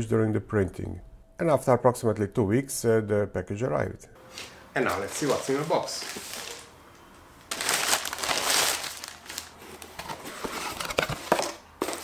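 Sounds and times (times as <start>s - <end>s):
plastic bag tearing and crinkling: 4.9s - 6.8s, 7.5s - 10.0s.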